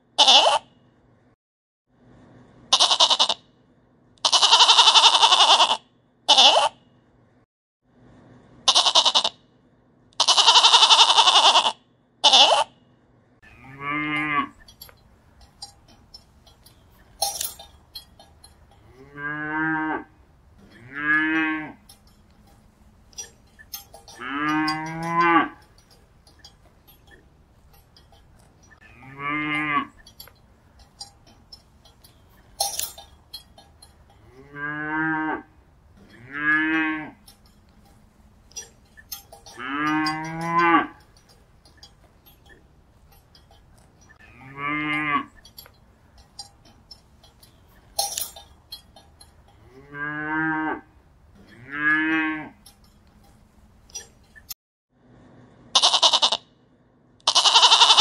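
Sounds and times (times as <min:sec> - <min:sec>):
cow mooing: 0:13.4 - 0:14.7, 0:18.8 - 0:22.0, 0:23.2 - 0:26.0, 0:28.8 - 0:30.2, 0:34.1 - 0:37.5, 0:39.3 - 0:41.0, 0:44.2 - 0:45.3, 0:49.5 - 0:52.8
sharp clinks: 0:14.2 - 0:19.1, 0:20.2 - 0:28.8, 0:29.5 - 0:34.4, 0:35.6 - 0:49.9, 0:51.0 - 0:54.6.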